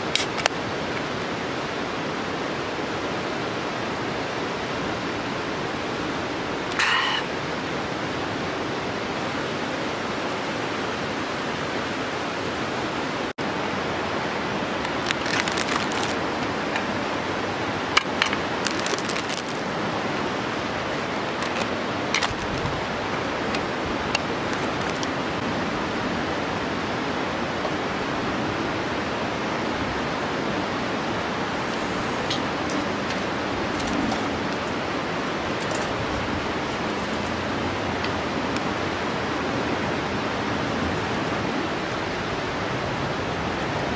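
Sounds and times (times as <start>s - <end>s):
river water rushing: 0.0s - 43.9s
brief clicks and crackles: 14.9s - 16.2s, 18.0s - 19.6s, 21.1s - 22.7s.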